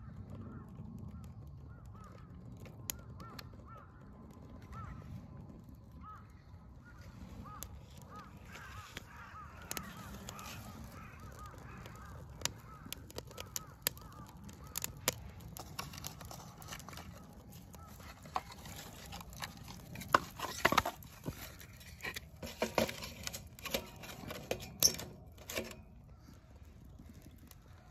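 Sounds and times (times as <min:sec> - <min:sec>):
fire crackling and popping: 0:00.0 - 0:27.9
bird calling: 0:06.0 - 0:19.6.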